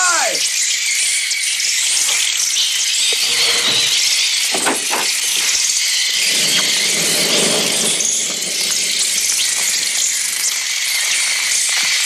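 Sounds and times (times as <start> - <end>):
electronic bird shrieking: 0.0 - 0.6.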